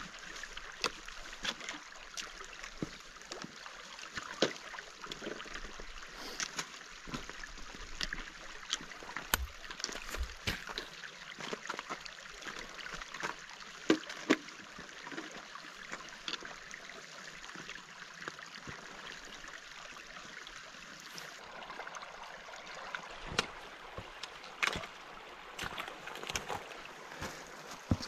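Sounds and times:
stream trickling over stones: 0.0 - 28.0
boots and poles knocking stones: 9.2 - 14.1, 25.6 - 28.0.

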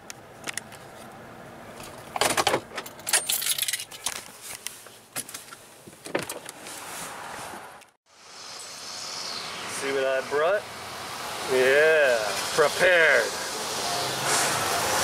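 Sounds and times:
handling rustling and clicks: 1.8 - 6.8
metallic jangling: 2.8 - 4.0.

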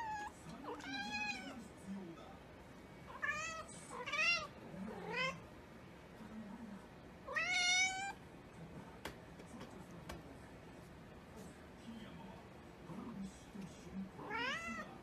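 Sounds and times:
cat meowing: 0.0 - 1.5, 3.1 - 5.4, 7.3 - 8.2, 14.2 - 14.9.

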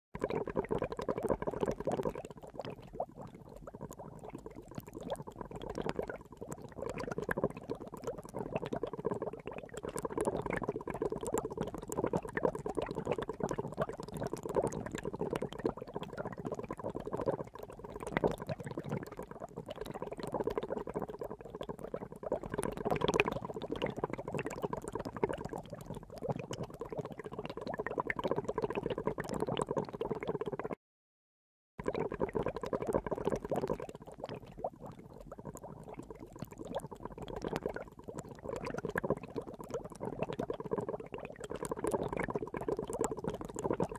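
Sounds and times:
water boiling and bubbling: 0.2 - 30.8, 31.8 - 43.9.

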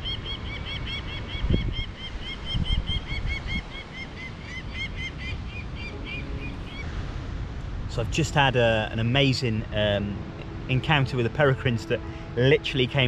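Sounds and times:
falcon calling: 0.0 - 7.0
wind on microphone: 0.0 - 11.0.

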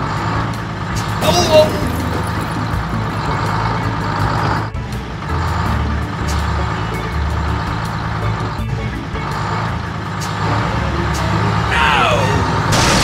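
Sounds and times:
background music: 0.0 - 13.0
tractor engine running: 0.0 - 13.0.

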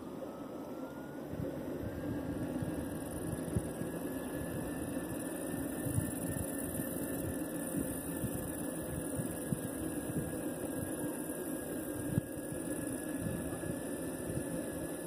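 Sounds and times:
wind buffeting microphone: 1.3 - 11.0.

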